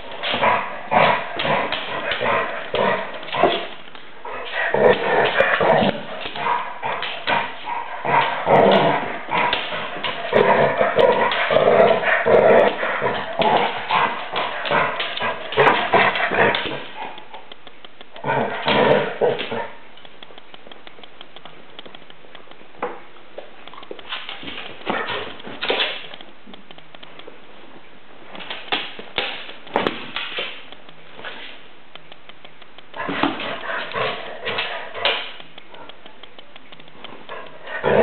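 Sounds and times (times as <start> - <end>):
dogs barking and yapping: 0.0 - 17.5.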